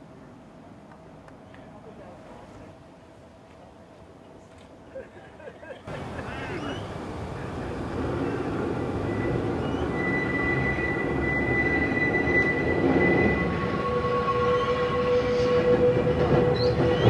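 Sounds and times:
electric tram rumbling on track: 0:00.0 - 0:17.0
thin whine: 0:05.9 - 0:15.8.

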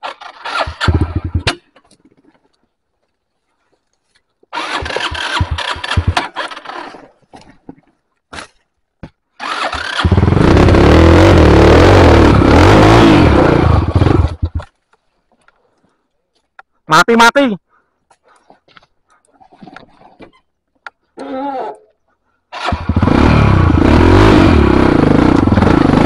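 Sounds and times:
motorcycle engine starting and revving: 0:00.0 - 0:01.8, 0:04.5 - 0:07.2, 0:09.4 - 0:14.8, 0:22.5 - 0:26.0.

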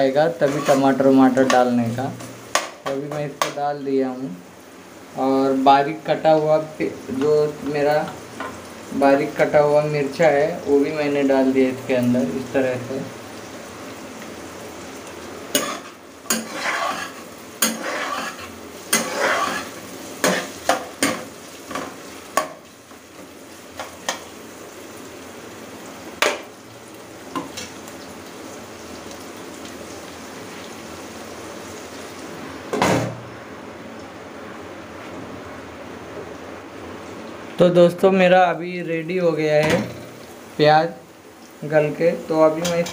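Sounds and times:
oil sizzling: 0:00.0 - 0:42.9
metal spoon scraping a pan: 0:00.4 - 0:01.0, 0:15.5 - 0:21.9.

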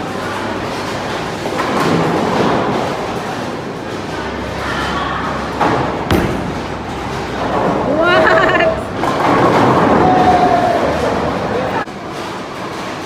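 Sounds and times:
bowling balls rolling: 0:00.1 - 0:11.8
bowling ball knocking on lane: 0:06.1 - 0:06.7.

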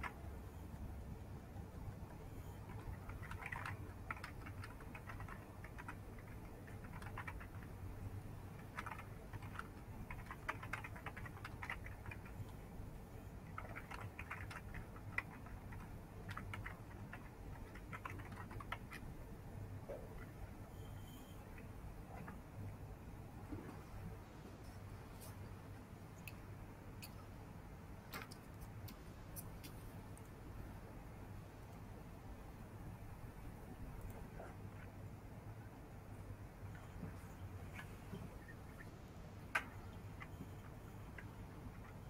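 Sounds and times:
keyboard typing: 0:00.0 - 0:00.7, 0:01.6 - 0:22.7, 0:28.0 - 0:30.4, 0:39.4 - 0:42.0
low steady hum: 0:00.0 - 0:42.0.

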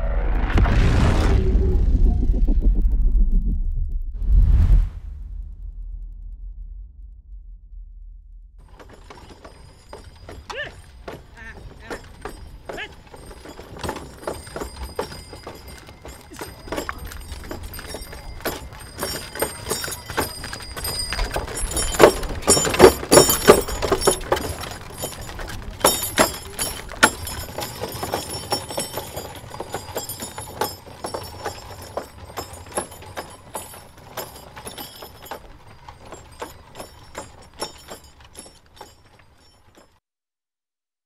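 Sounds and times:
cart rattling: 0:08.6 - 0:40.0
hoofbeats: 0:08.6 - 0:40.0
small bells jingling: 0:08.6 - 0:40.0.

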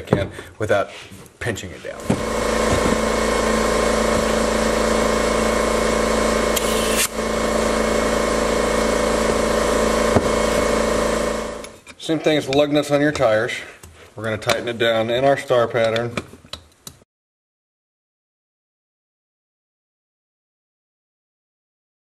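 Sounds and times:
air compressor running: 0:02.0 - 0:11.8.

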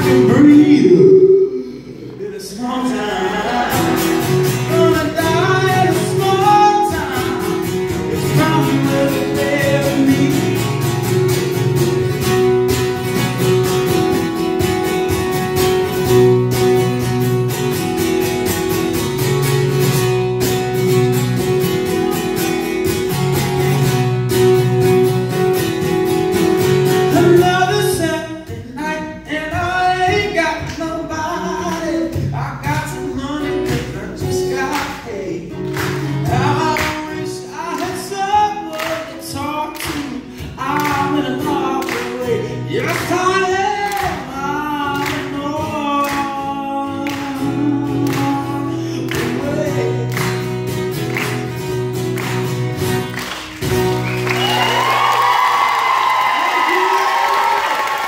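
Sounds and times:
man singing: 0:00.0 - 0:11.2, 0:27.0 - 0:50.4
strummed acoustic guitar: 0:00.0 - 0:54.4.

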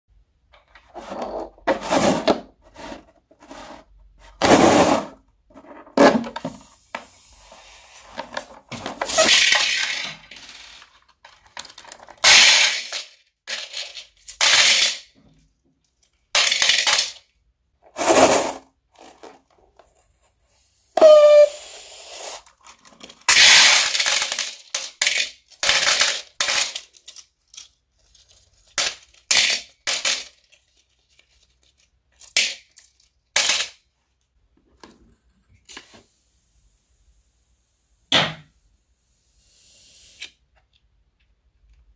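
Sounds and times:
plastic beads clattering into bowl: 0:08.4 - 0:15.1, 0:16.3 - 0:17.3, 0:17.9 - 0:19.6, 0:22.2 - 0:33.8
falling squeak: 0:21.0 - 0:21.7
rubber balloons squeezed: 0:21.0 - 0:22.5.

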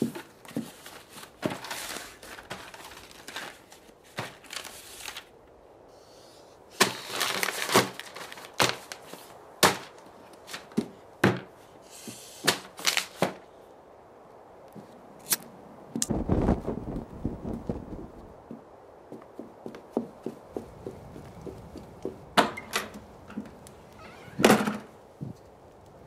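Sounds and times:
crunching rustle: 0:00.0 - 0:05.5, 0:06.7 - 0:11.0, 0:11.9 - 0:13.5
sharp cracks and snaps: 0:15.2 - 0:16.2.

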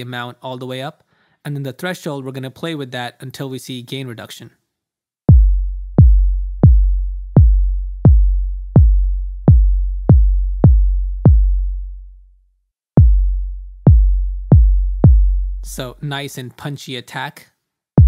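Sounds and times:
synthesized sub kick drum: 0:05.3 - 0:12.1, 0:13.0 - 0:16.0.

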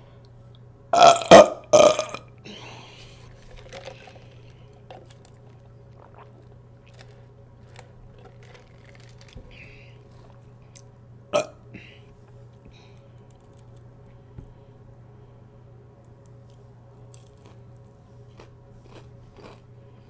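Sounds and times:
loud burps: 0:01.0 - 0:02.3, 0:11.4 - 0:11.6.

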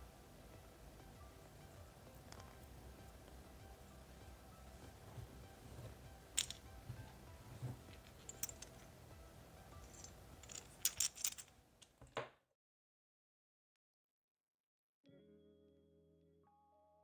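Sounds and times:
metal adapters clinking: 0:05.8 - 0:08.9, 0:09.7 - 0:12.0.

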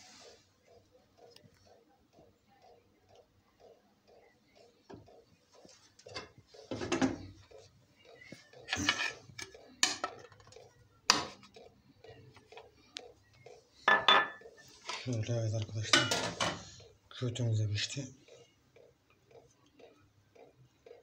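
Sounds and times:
dishes clinking: 0:06.0 - 0:07.4, 0:08.6 - 0:11.5, 0:13.8 - 0:15.1, 0:15.8 - 0:16.7
spoon tapping and scraping: 0:08.4 - 0:11.6.

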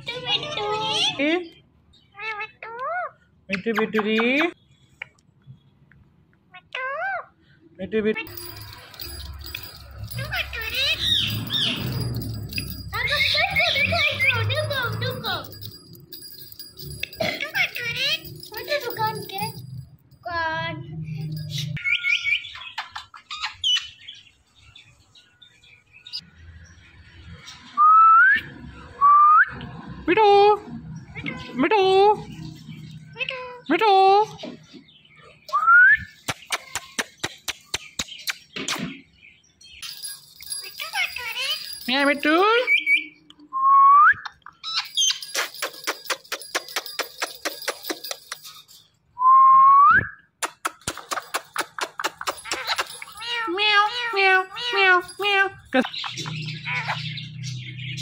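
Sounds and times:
parrots chattering and chirping: 0:01.9 - 0:04.5, 0:08.2 - 0:20.3, 0:21.1 - 0:25.0, 0:39.7 - 0:43.3, 0:44.2 - 0:49.0, 0:50.4 - 0:58.0
parrot clicking: 0:50.4 - 0:53.4.

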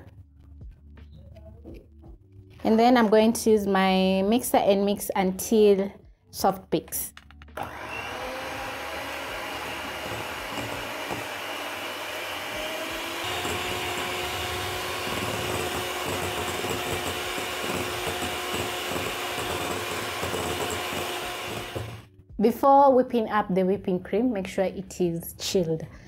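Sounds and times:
electric hand mixer running: 0:07.6 - 0:22.1.

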